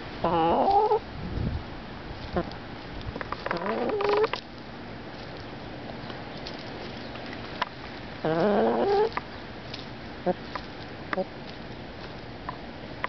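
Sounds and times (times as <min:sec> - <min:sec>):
hen calling: 0:00.2 - 0:01.0, 0:03.4 - 0:04.4, 0:08.2 - 0:09.2
beak pecking on ground: 0:02.2 - 0:04.5, 0:05.2 - 0:12.6.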